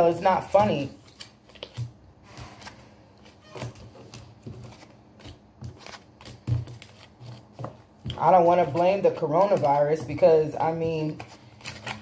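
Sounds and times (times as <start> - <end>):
cards tapping and sliding: 0.6 - 2.8, 3.7 - 8.1.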